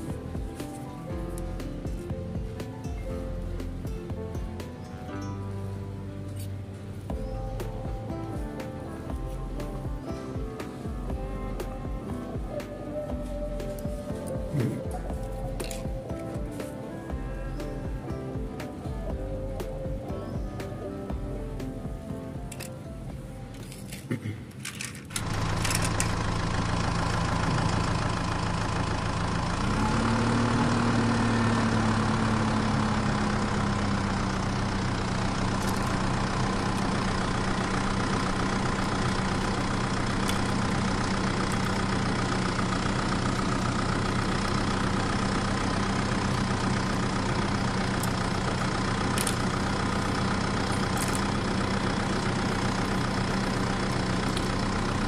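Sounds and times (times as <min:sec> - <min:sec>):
tractor engine idling: 0:00.0 - 0:55.0
plastic pieces clicking: 0:23.6 - 0:26.1.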